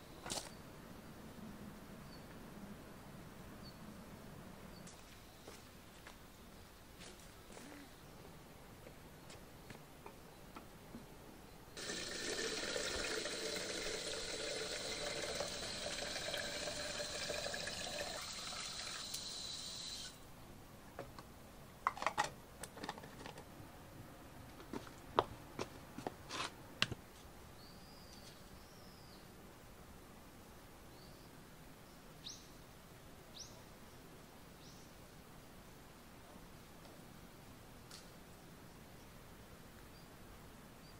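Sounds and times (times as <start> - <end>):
tap water running into container: 11.8 - 20.1
bird chirping: 27.6 - 29.3.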